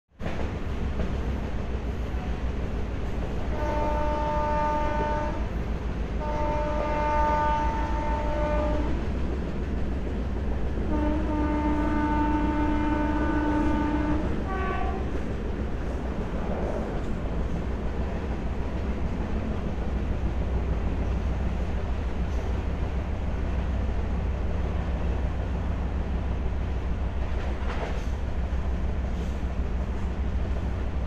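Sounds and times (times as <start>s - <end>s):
train rumbling and rattling on track: 0.1s - 31.0s
train horn blasts: 3.4s - 5.6s, 6.2s - 9.1s, 10.8s - 15.1s.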